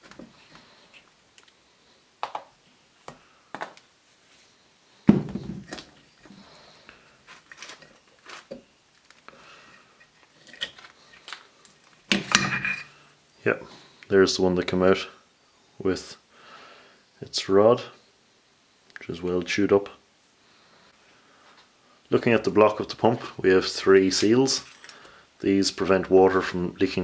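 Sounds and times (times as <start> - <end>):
heavy metal thunk: 5.1 - 5.8
metal parts clattering: 7.3 - 8.6, 9.7 - 13.0, 24.5 - 25.0
metal pump parts clicking: 9.9 - 13.0.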